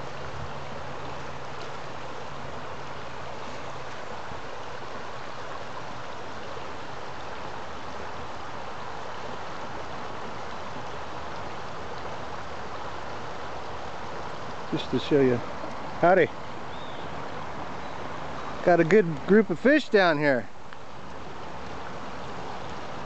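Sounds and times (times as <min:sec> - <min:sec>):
creek flowing over gravel: 0:00.0 - 0:23.0.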